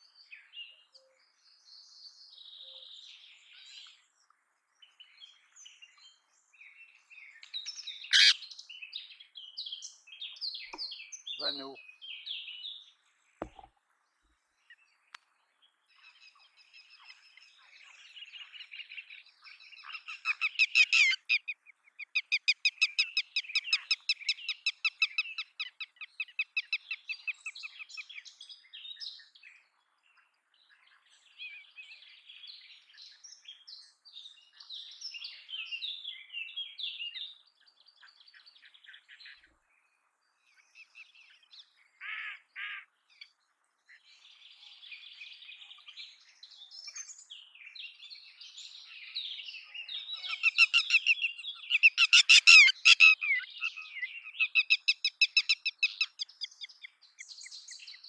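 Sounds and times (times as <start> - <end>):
lapwing calling: 7.6 - 8.5, 19.8 - 26.9, 50.1 - 56.8.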